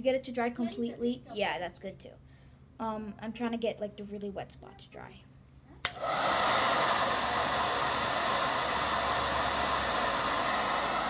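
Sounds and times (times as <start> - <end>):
hair dryer switch click: 5.8 - 6.3
hair dryer blowing: 5.8 - 11.0.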